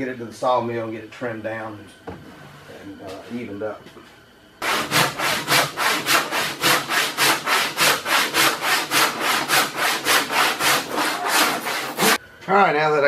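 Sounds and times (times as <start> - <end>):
handsaw cutting wood: 4.6 - 12.2.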